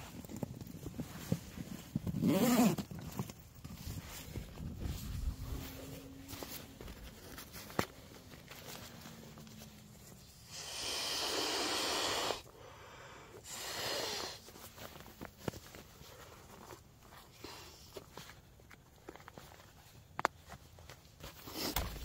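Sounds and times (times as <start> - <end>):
nylon fabric rustling: 0.8 - 10.3.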